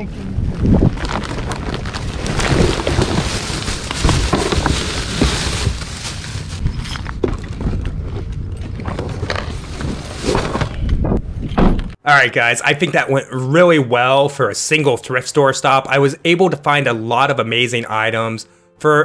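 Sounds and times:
wind buffeting microphone: 0.0 - 4.8
plastic bags rustling: 0.6 - 7.8, 8.7 - 10.8.

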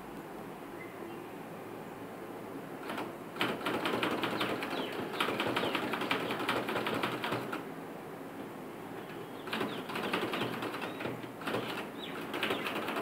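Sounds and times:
typewriter keystrokes: 2.8 - 7.6, 9.5 - 13.0.

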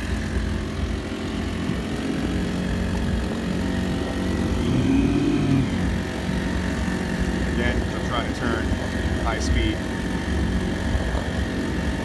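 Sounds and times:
small outboard engine running: 0.0 - 12.0.

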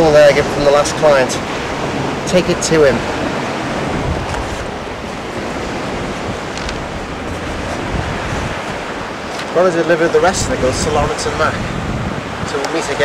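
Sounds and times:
surf on a beach: 0.0 - 13.0
wind buffeting microphone: 0.0 - 13.0.

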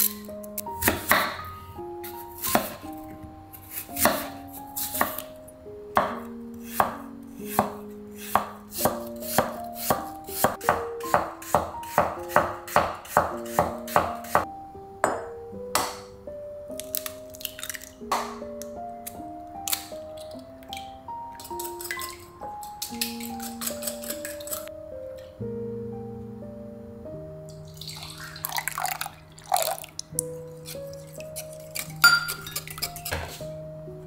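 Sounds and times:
knife chopping on wooden board: 0.8 - 1.4, 2.4 - 2.8, 3.7 - 5.2, 6.0 - 14.5.

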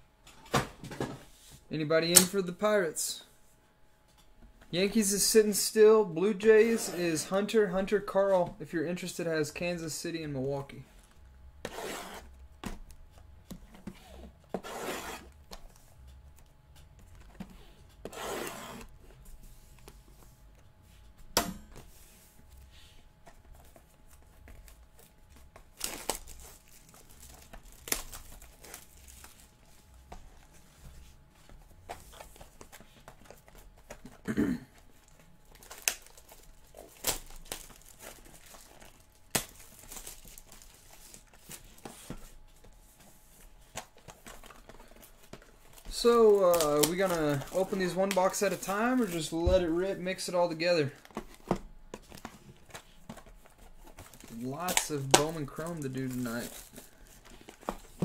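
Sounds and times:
shrink wrap tearing and crinkling: 25.7 - 29.7, 35.0 - 41.8, 43.8 - 49.3, 52.1 - 58.0
cardboard clicks and rustles: 35.0 - 49.7.

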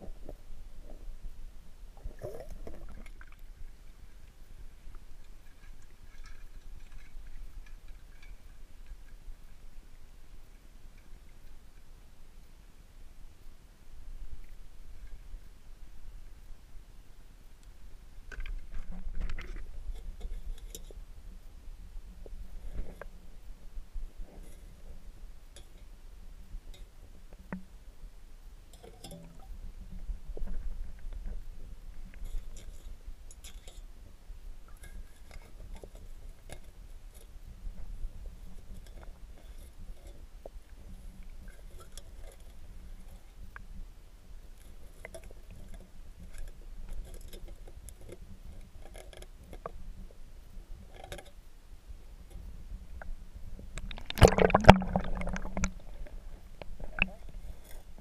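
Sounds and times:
underwater rumble of moving water: 0.0 - 28.2, 34.0 - 58.0
metal rake scraping underwater: 5.2 - 9.3, 18.7 - 21.0, 28.8 - 29.6, 32.0 - 33.9, 34.7 - 43.5, 44.6 - 49.7, 50.8 - 51.4, 53.8 - 58.0
rake clicks and knocks underwater: 18.3 - 21.0, 53.8 - 57.8
low underwater rumble: 52.3 - 57.6.

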